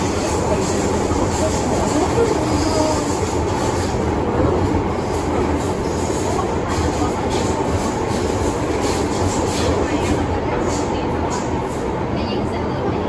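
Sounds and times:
train rumbling in a tunnel: 0:00.0 - 0:13.0.

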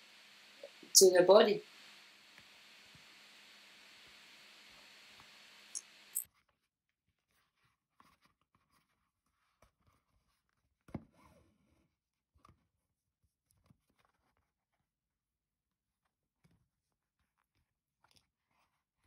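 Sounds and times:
needle and thread through leather: 0:06.2 - 0:11.8, 0:16.4 - 0:19.0.

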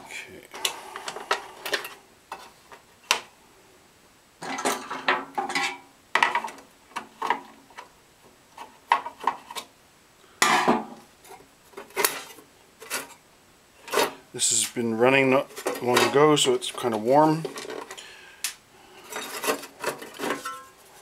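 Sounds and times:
metal plate clinking on plastic: 0:19.1 - 0:20.8.

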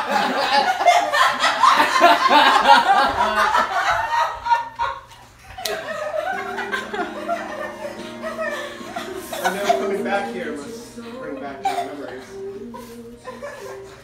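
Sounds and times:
audience laughing: 0:00.0 - 0:14.0
music with held notes: 0:05.7 - 0:14.0.

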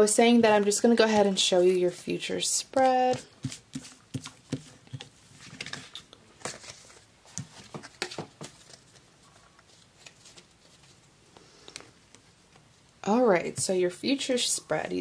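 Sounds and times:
cards tapping and sliding: 0:02.8 - 0:08.8.

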